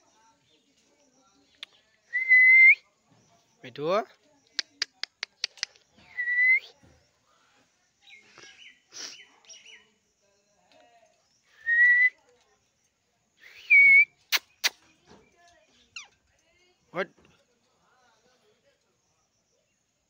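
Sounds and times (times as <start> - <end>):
sharp clicks: 4.4 - 5.8.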